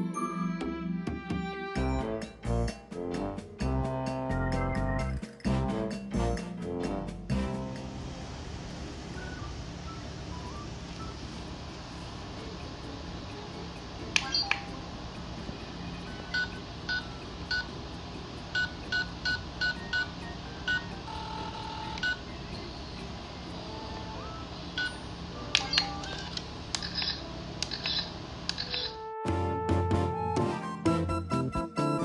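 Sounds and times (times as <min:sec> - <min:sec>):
button clicks: 0:14.2 - 0:14.7
electronic toy beeping: 0:20.7 - 0:22.2.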